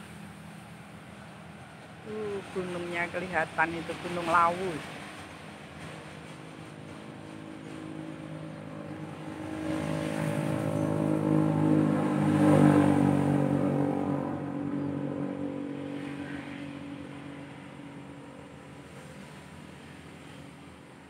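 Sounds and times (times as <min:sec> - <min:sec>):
small engine passing by: 0:07.3 - 0:18.4.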